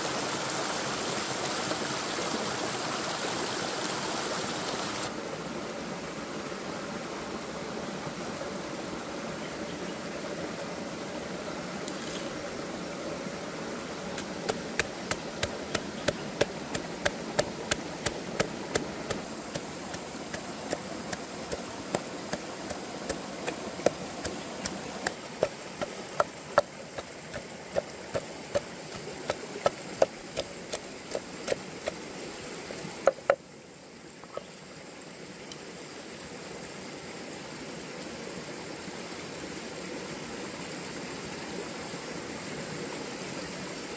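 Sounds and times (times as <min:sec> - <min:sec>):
pestle pounding in wooden mortar: 0:14.2 - 0:32.0.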